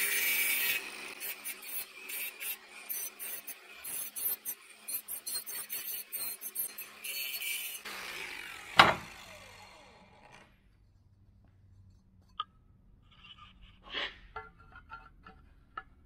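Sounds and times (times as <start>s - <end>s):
angle grinder spinning down: 0.0s - 10.5s.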